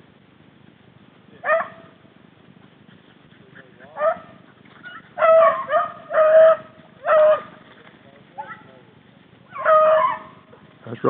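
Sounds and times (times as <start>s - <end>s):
dog baying: 2.6s - 7.6s, 9.5s - 10.7s.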